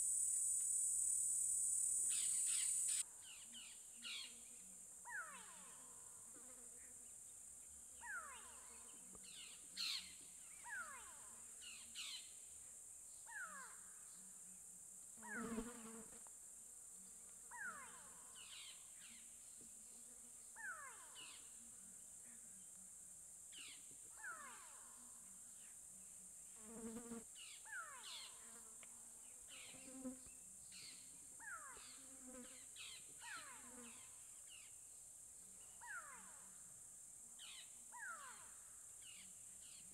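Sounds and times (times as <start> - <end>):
high-pitched insect chorus: 0.0 - 4.5.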